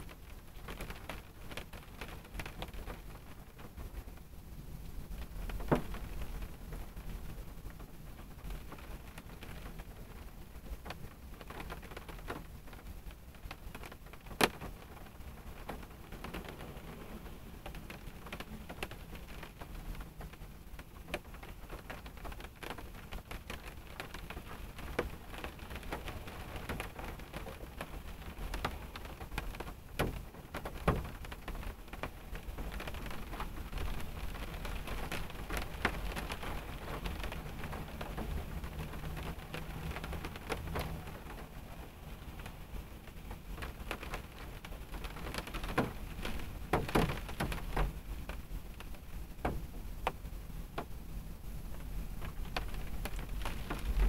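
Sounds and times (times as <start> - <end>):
rain pattering on a car: 0.0 - 54.0
low steady rumble: 47.9 - 54.0
sharp raindrop hits: 51.8 - 54.0.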